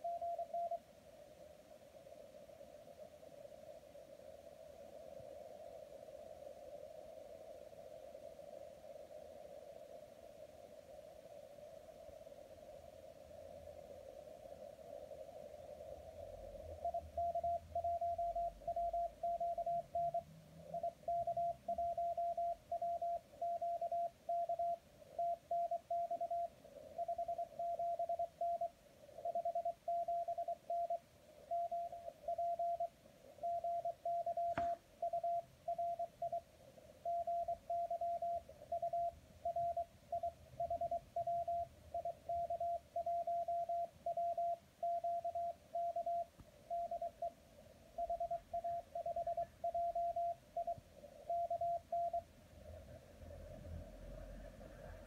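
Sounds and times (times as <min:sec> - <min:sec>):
morse code tone: 0:00.0 - 0:00.8, 0:16.8 - 0:20.2, 0:20.8 - 0:28.7, 0:29.3 - 0:36.4, 0:48.0 - 0:52.2.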